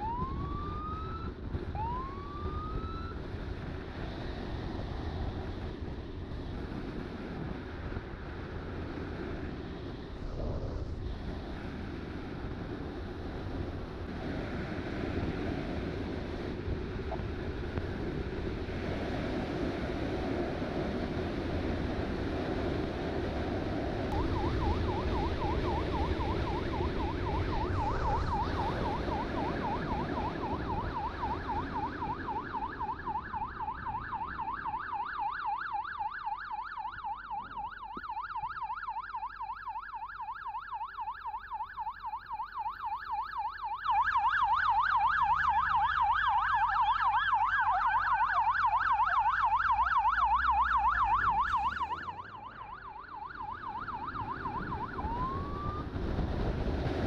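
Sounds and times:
electronic siren yelping: 0:00.0 - 0:03.2, 0:24.1 - 0:56.1
wind noise: 0:00.0 - 0:35.8, 0:43.9 - 0:57.0.

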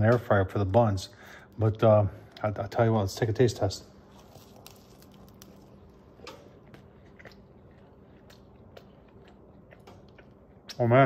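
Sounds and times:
man chewing food: 0:04.0 - 0:10.9.

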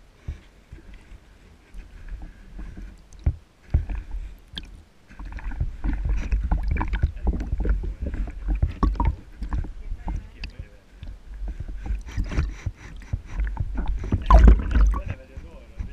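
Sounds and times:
water sloshing and bubbling: 0:00.0 - 0:15.9.

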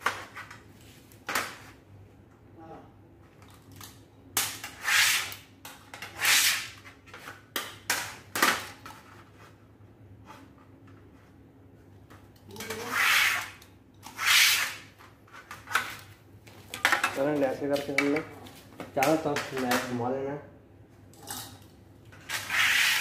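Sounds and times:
knife scraping aluminium sheet: 0:04.6 - 0:05.4, 0:06.0 - 0:06.8, 0:12.6 - 0:15.5, 0:22.2 - 0:23.0.

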